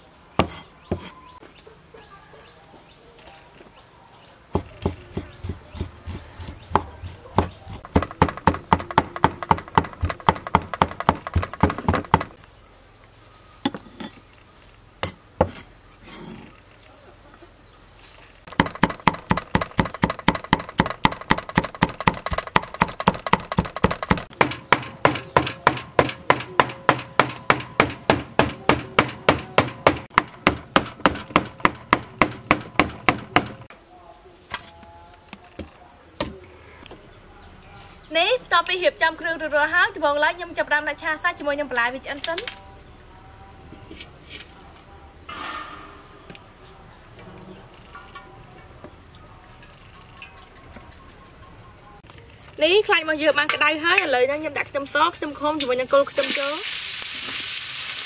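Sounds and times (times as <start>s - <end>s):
cleaver chopping on wooden board: 4.6s - 12.4s, 18.5s - 33.7s.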